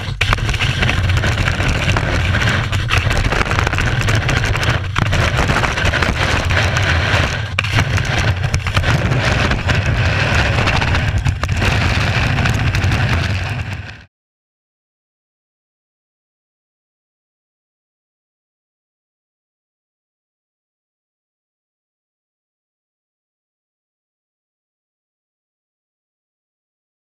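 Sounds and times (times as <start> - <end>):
ski scraping over snow: 0.0 - 14.1
wind rumble on camera: 0.0 - 14.1.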